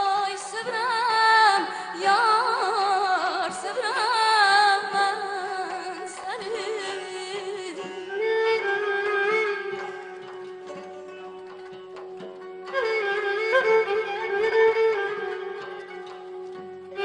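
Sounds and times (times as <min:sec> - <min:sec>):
woman singing with ornamented trills: 0:00.0 - 0:08.7
traditional instrumental ensemble: 0:00.0 - 0:17.0.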